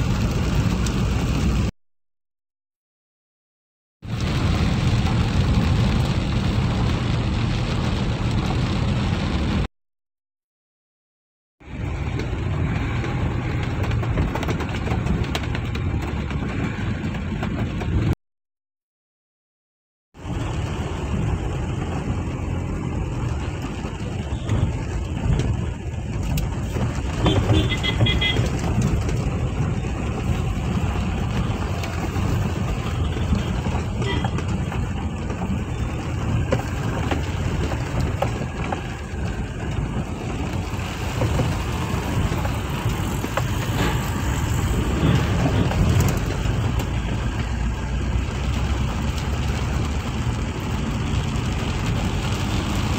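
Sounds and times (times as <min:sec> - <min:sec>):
rain on windshield: 0:00.0 - 0:01.7, 0:04.0 - 0:09.7, 0:11.6 - 0:18.2, 0:20.2 - 0:52.9
tyres on wet road: 0:00.0 - 0:01.7, 0:04.0 - 0:09.7, 0:11.6 - 0:18.2, 0:20.1 - 0:52.9
car engine: 0:11.6 - 0:18.2, 0:20.2 - 0:52.9.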